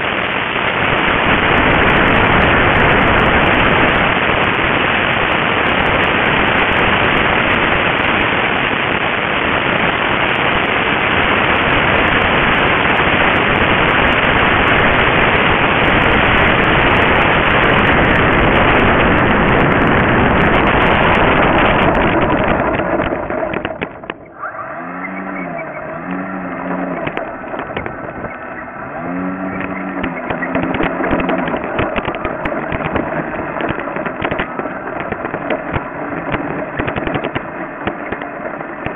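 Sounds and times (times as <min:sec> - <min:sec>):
wind rushing: 0:00.0 - 0:37.8
short low tones: 0:00.0 - 0:38.5
rattling on grass: 0:18.8 - 0:38.9.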